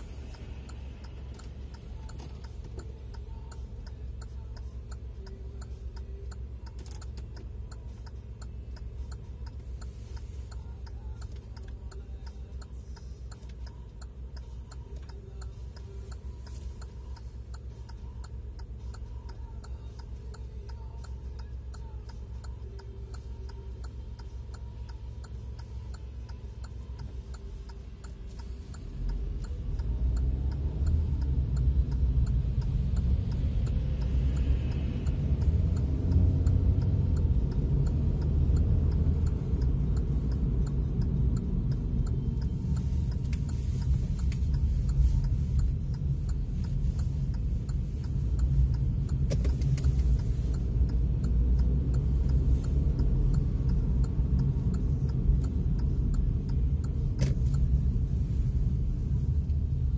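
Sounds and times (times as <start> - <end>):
low engine rumble: 0.0 - 59.9
turn-signal indicator clicking: 0.0 - 59.9.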